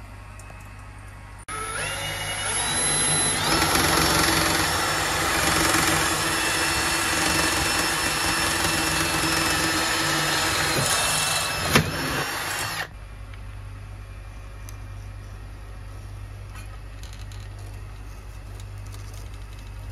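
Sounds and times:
drill cutting through metal: 1.5 - 12.9.

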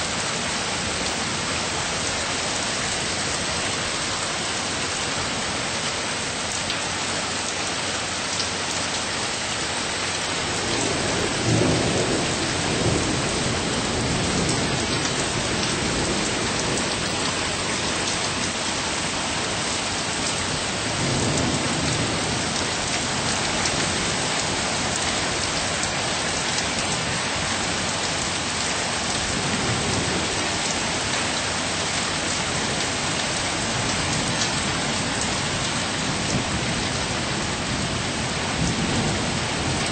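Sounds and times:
steady rain falling: 0.0 - 39.9
thunder rumbling: 10.4 - 19.6, 20.2 - 25.5.

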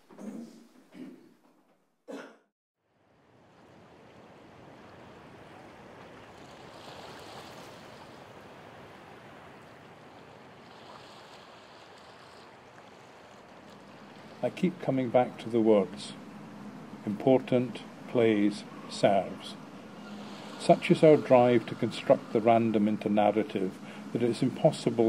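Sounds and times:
water rushing: 3.0 - 25.0.

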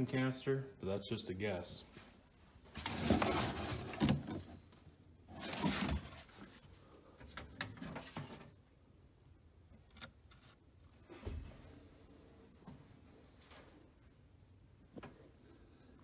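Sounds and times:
cardboard crinkling and scraping: 2.7 - 6.8.

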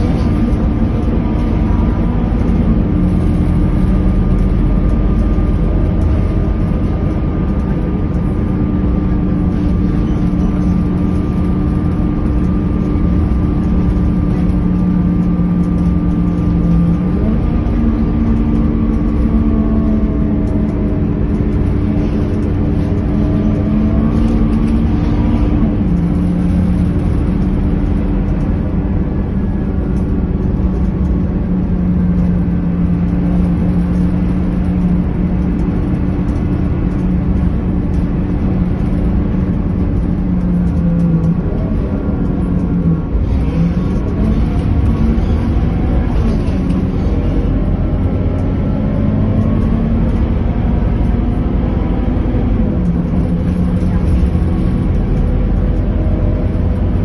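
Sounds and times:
bus diesel engine running: 0.0 - 57.0
road and tyre noise: 0.0 - 57.0.

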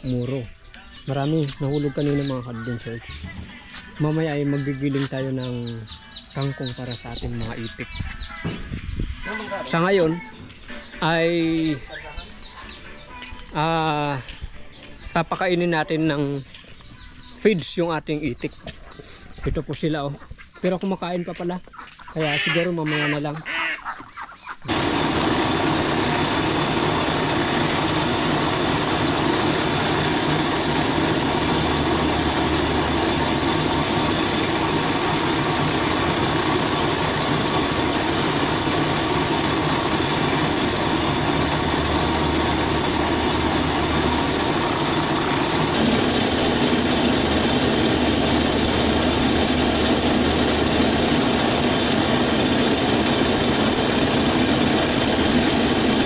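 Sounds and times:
small engine running: 24.7 - 56.0.

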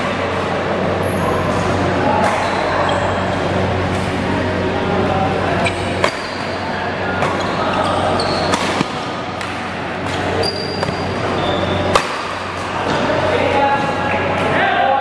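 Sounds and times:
low hum: 0.0 - 13.3
shoes squeaking on court: 1.0 - 4.2, 5.6 - 9.1, 10.0 - 13.1
racket hitting shuttlecock: 2.2 - 2.6, 5.7 - 6.6, 7.2 - 13.0.

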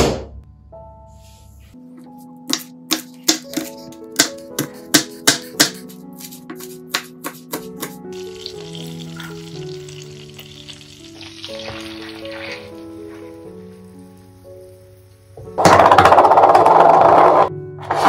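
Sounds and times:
knife chopping on cutting board: 2.5 - 8.0
onion sizzling in a frying pan: 8.2 - 15.2.

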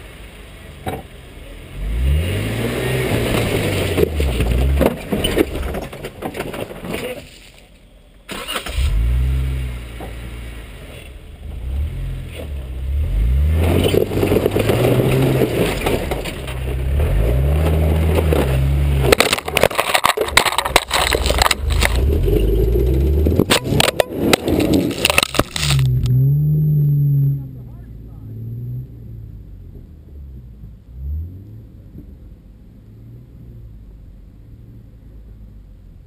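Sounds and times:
vehicle engine revving: 1.5 - 5.6, 8.3 - 19.6, 20.4 - 33.9
knocks and scraping clatter: 3.0 - 7.9, 13.5 - 26.2.

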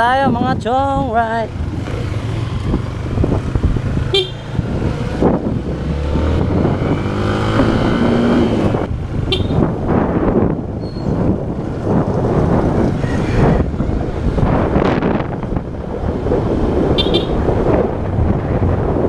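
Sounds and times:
motorcycle engine revving: 1.4 - 18.6
motorcycle horn beeps: 4.1 - 4.4, 9.3 - 9.7, 17.0 - 17.4.

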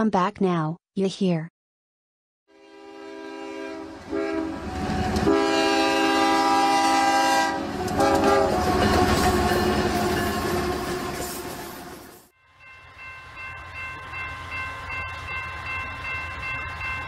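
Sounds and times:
locomotive air horn blasts: 2.5 - 11.2
train rumble: 3.9 - 17.0.

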